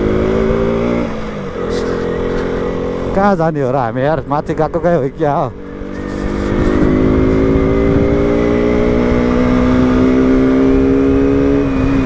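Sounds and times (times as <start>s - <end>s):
motorcycle engine revving: 0.0s - 12.0s
wind rumble: 0.0s - 12.0s.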